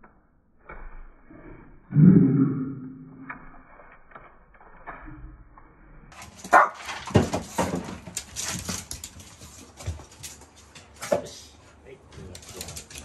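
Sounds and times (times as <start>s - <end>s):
claws scrabbling on wooden floor: 6.2s - 11.1s.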